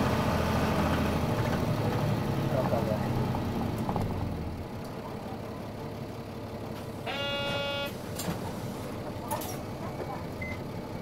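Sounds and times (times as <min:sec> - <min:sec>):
bus engine from inside: 0:00.0 - 0:11.0
short electronic buzzer tone: 0:07.0 - 0:08.0.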